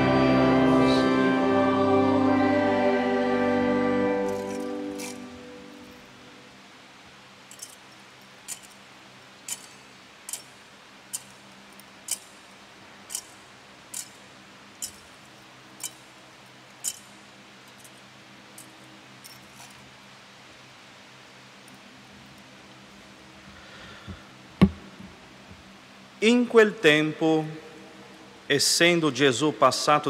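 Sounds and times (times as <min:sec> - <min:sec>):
sharp metallic clinks: 0:07.5 - 0:08.8, 0:09.5 - 0:11.4, 0:13.1 - 0:16.1, 0:16.8 - 0:18.0.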